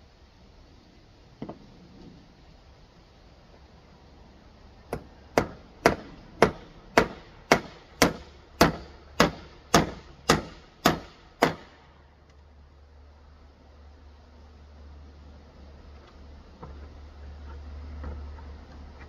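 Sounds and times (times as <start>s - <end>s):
hammer nailing wooden board: 4.9s - 11.7s.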